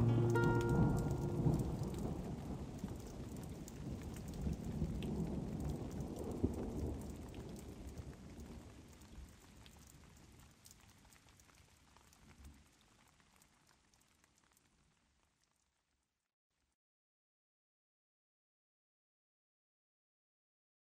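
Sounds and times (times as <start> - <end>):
low rumble of thunder: 0.0 - 8.9
rain falling: 0.0 - 15.8.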